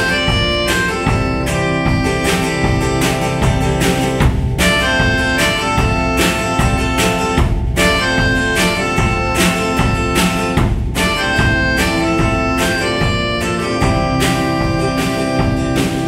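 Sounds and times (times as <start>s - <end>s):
acoustic guitar strumming: 0.0s - 16.0s
drum kit beat: 0.0s - 16.0s.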